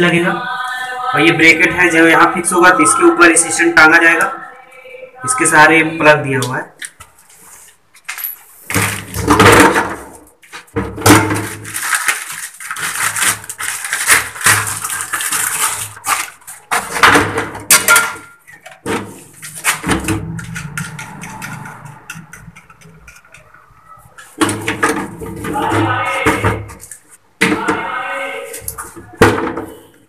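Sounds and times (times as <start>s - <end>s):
plastic parts clattering: 8.0s - 27.2s.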